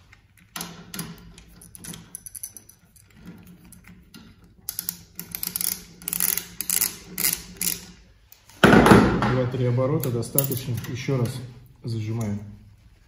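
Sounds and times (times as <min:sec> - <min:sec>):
ratchet wrench clicking: 0:04.7 - 0:08.5.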